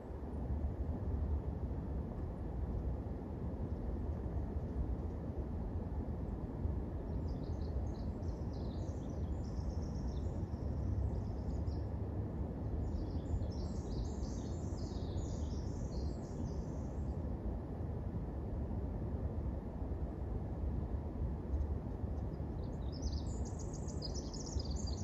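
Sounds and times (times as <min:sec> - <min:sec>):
low background rumble: 0:00.0 - 0:25.0
songbird chirping: 0:22.6 - 0:25.0.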